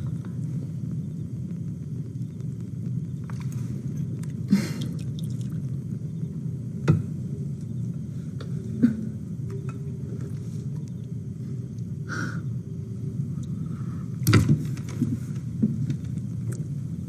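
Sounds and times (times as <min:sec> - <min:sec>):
low rumble: 0:00.0 - 0:14.2
eating sounds: 0:04.2 - 0:05.7.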